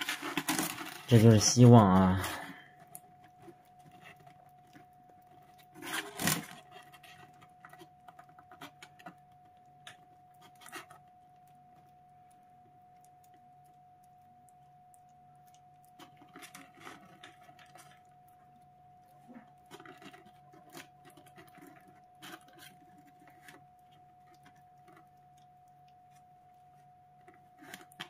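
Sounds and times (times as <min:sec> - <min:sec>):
faint steady hum: 0:00.0 - 0:28.0
kitten eating wet food: 0:06.6 - 0:28.0.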